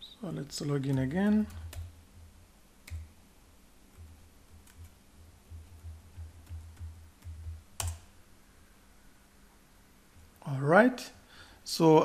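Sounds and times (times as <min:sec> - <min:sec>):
keystrokes on computer keyboard: 0:00.9 - 0:01.9, 0:02.8 - 0:03.1, 0:03.9 - 0:08.1.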